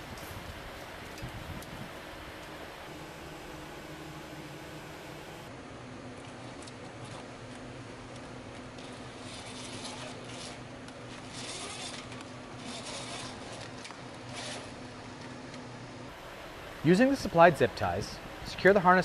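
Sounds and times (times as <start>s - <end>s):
faint steady hum: 0.0s - 19.0s
wiring rubbing and scraping: 8.8s - 14.8s.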